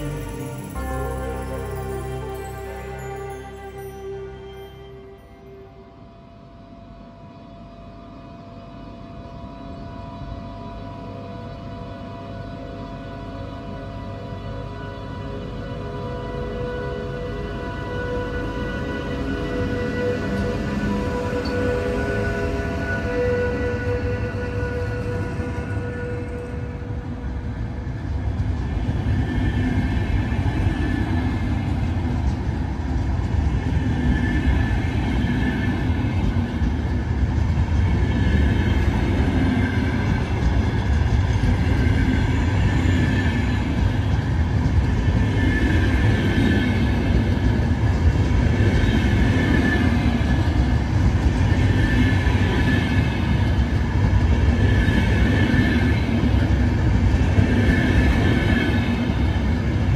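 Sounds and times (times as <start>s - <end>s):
train wheels rumbling on rail: 7.5s - 59.9s.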